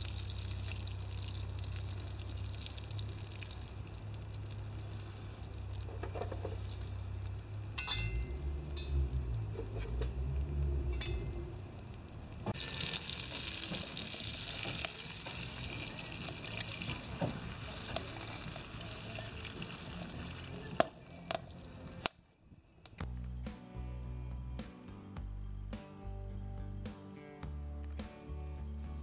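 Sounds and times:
tomatoes sizzling in a pan: 0.0 - 21.6
music: 12.6 - 22.2, 23.0 - 29.0.

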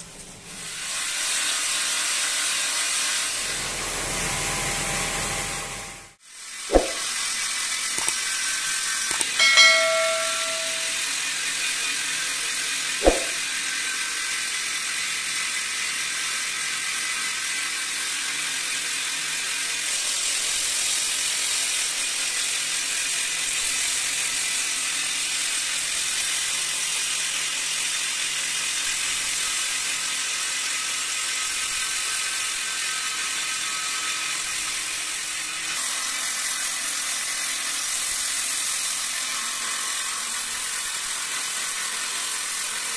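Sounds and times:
short chime: 9.4 - 11.1.

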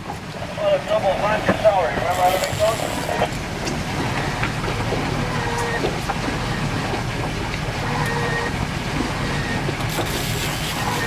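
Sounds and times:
boat engine humming: 0.0 - 11.0
water noise: 0.0 - 11.0
wind: 0.0 - 11.0.

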